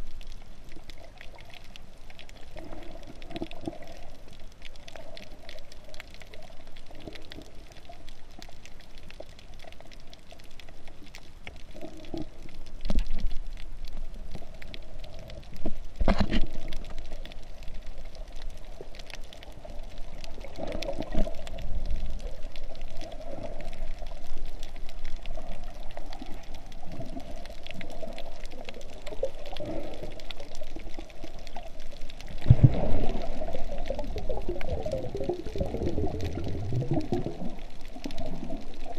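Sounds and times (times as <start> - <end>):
muffled underwater hiss: 0.0 - 38.9
water splashing surges: 32.2 - 38.9.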